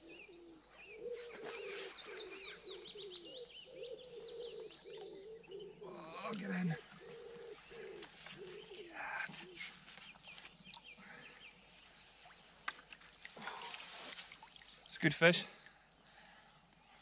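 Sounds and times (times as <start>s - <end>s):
low cooing bird call: 0.0s - 11.6s
songbirds chirping: 0.0s - 17.0s.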